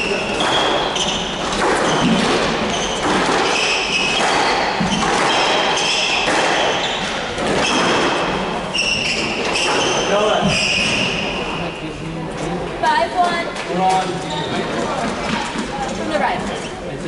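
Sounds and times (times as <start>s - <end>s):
squash ball hitting walls: 0.0s - 11.4s
shoes squeaking on hardwood floor: 0.0s - 11.6s, 14.0s - 16.8s.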